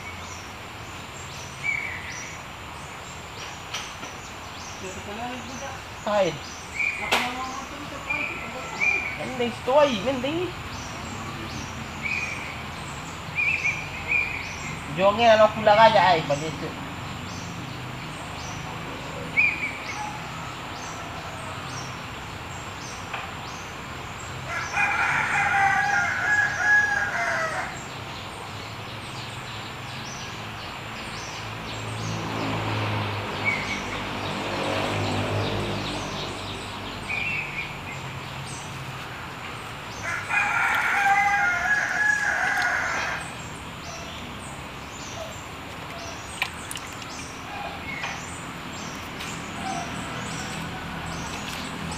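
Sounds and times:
rooster crowing: 8.2s - 9.4s, 19.9s - 22.0s, 24.5s - 27.8s, 40.0s - 43.4s.

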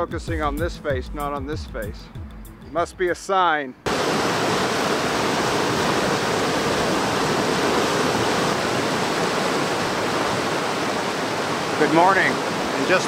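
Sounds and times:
stream rushing over rocks: 3.9s - 13.0s.

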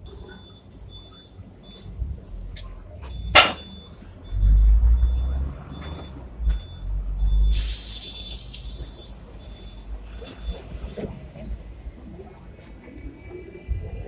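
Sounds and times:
tram rumbling: 0.0s - 14.0s
air brake hiss: 7.4s - 9.2s.

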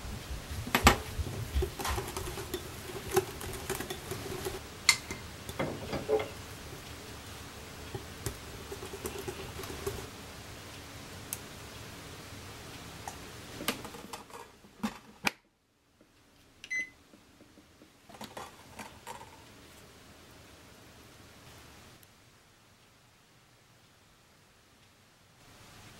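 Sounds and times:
whisk scraping in glass bowl: 1.1s - 6.4s, 7.9s - 10.1s
rice cooker electronic beep: 16.6s - 17.0s.

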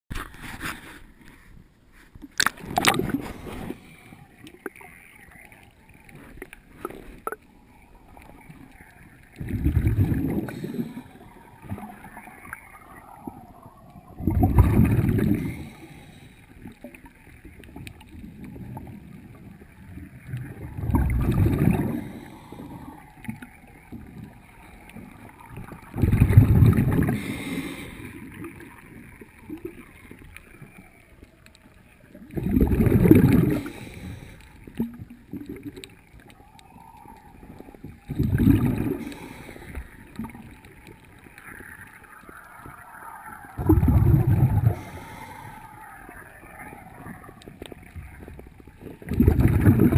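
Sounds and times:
diver's exhaled bubbles bursting: 2.4s - 3.9s, 9.3s - 16.0s, 18.3s - 24.4s, 25.0s - 30.1s, 32.1s - 40.6s, 41.4s - 49.9s
faint ticks: 3.7s - 9.5s, 15.2s - 21.0s, 22.0s - 26.0s, 27.0s - 32.5s, 33.2s - 49.8s.

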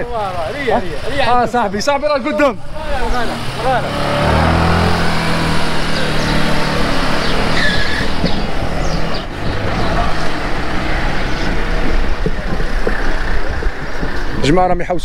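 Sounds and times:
road and wind noise: 0.0s - 15.0s
vehicle engine running: 2.7s - 14.3s.

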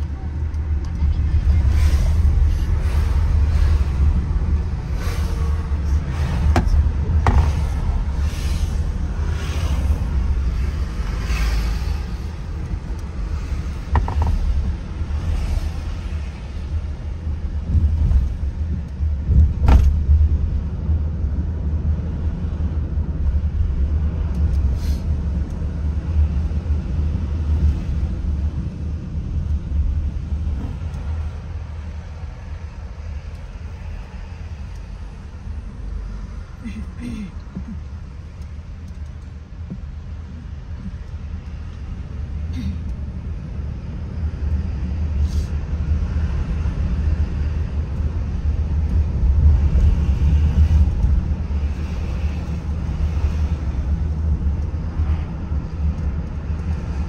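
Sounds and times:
car cabin rumble: 0.0s - 8.2s, 12.5s - 15.4s, 16.9s - 21.4s.

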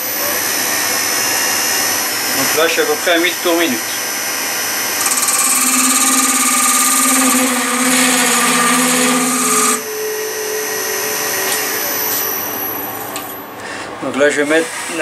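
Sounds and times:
lathe motor hum: 0.0s - 13.3s
lathe tool scraping wood: 4.9s - 12.3s.

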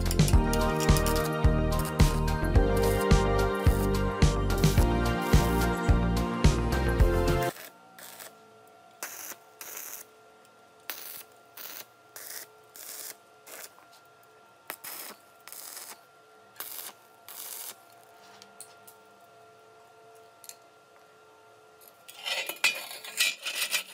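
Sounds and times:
arc welding crackling hisses: 0.0s - 8.4s, 9.0s - 10.1s, 10.8s - 18.2s.

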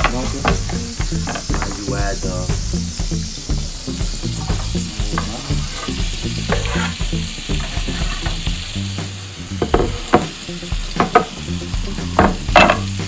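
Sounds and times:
vegetables sizzling in a frying pan: 0.0s - 13.0s
knife scraping against pan: 5.7s - 7.0s.

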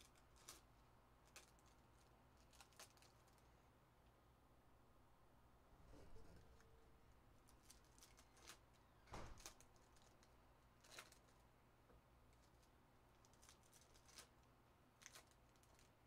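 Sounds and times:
foil wrappers crinkling: 0.0s - 3.5s, 7.4s - 11.5s, 12.3s - 16.0s.

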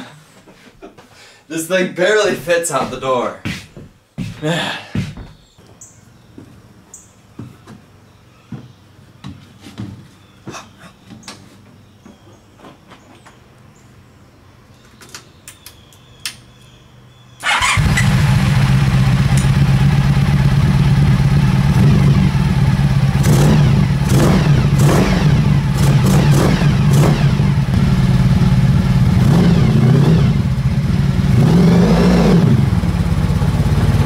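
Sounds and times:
motorcycle engine revving: 17.4s - 34.0s.

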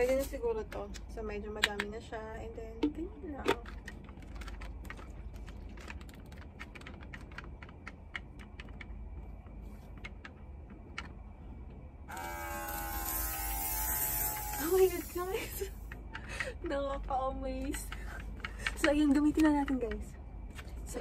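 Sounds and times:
plastic clicks and taps: 0.7s - 1.9s
electric whine of spray gun: 12.1s - 15.6s.

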